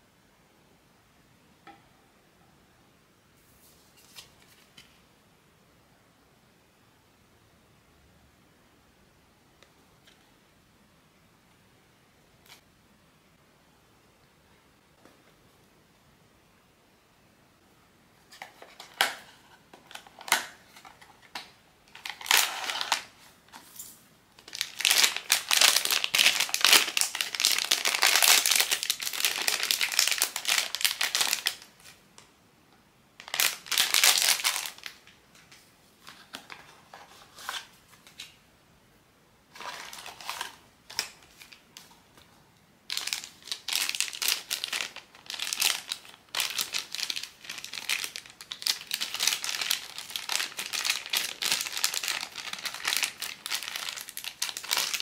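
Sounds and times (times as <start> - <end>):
packaging crinkling and rustling: 18.3 - 23.3, 24.4 - 32.0, 33.2 - 35.1, 39.5 - 42.2, 42.9 - 55.0.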